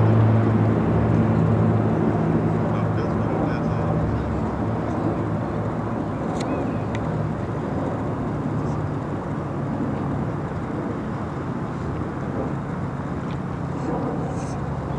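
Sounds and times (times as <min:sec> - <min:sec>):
propeller plane engine drone: 0:00.0 - 0:14.9.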